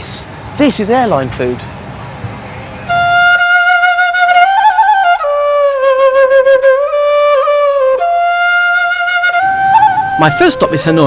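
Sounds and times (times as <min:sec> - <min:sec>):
solo flute slow melody: 0:02.8 - 0:11.0.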